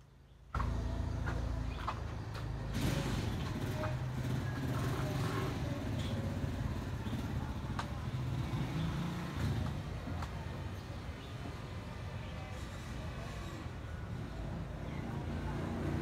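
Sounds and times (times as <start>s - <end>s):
vehicle engine running: 0.5s - 9.8s.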